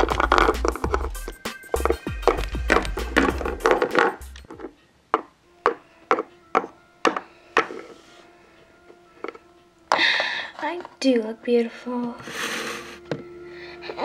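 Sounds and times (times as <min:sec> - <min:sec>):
plastic figurines knocking on wooden floor: 0:00.0 - 0:07.8
background music: 0:00.0 - 0:14.0.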